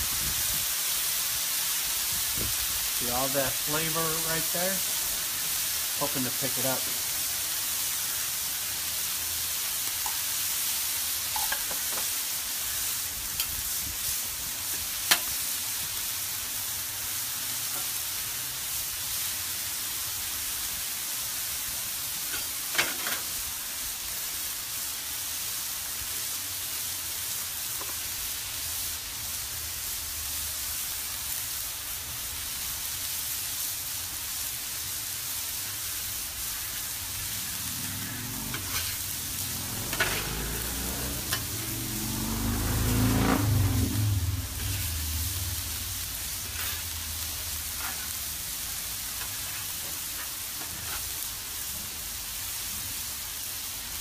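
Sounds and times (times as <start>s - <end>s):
food sizzling on a griddle: 0.0s - 54.0s
metal spatula clicks on griddle: 11.3s - 12.1s, 15.1s - 15.3s.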